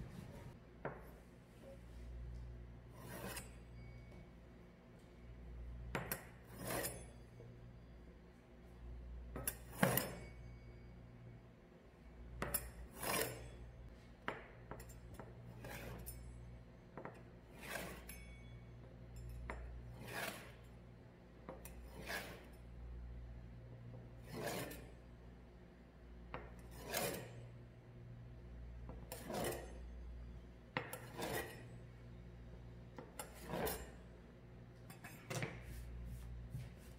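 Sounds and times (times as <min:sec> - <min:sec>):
low steady hum: 0:00.0 - 0:36.9
pizza cutter scraping along ruler: 0:02.9 - 0:03.8, 0:06.1 - 0:07.2, 0:12.5 - 0:13.6, 0:15.5 - 0:16.2, 0:17.4 - 0:18.2, 0:19.9 - 0:20.7, 0:21.5 - 0:22.6, 0:24.2 - 0:25.0, 0:26.4 - 0:27.5, 0:28.9 - 0:29.9, 0:30.8 - 0:31.8, 0:33.0 - 0:34.1.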